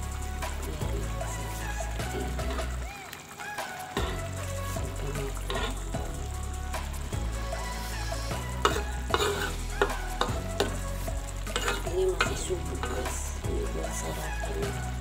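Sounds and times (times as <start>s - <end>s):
sauce sizzling and bubbling: 0.0s - 15.0s
spatula scraping wok: 0.0s - 15.0s
spatula knocking pan: 8.6s - 10.8s.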